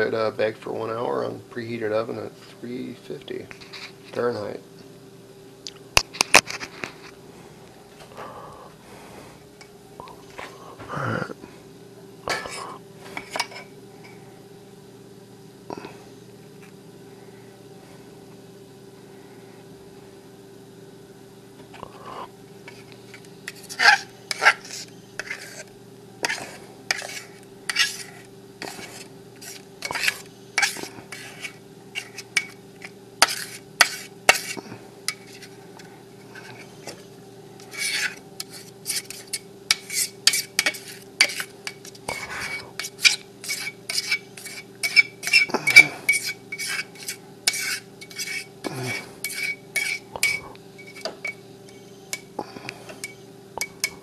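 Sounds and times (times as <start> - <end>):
fork scraping and clinking on bowl: 13.2 - 13.7, 22.7 - 35.5, 37.6 - 52.3, 53.0 - 54.0.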